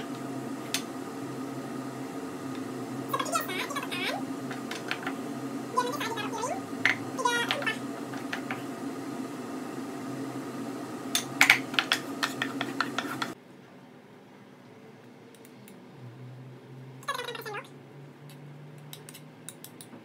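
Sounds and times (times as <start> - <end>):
steady hum: 0.0 - 13.4
wooden spatula scraping frying pan: 11.5 - 13.4.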